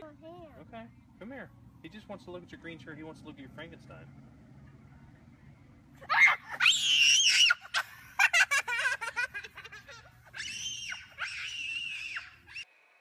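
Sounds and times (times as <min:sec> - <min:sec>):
child shrieking: 0:06.0 - 0:07.8, 0:10.4 - 0:12.6
child laughing: 0:06.0 - 0:12.5.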